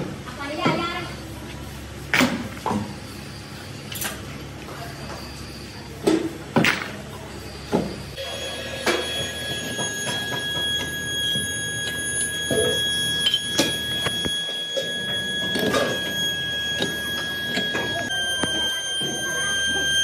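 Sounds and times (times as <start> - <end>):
high-pitched whine: 7.6 - 20.0.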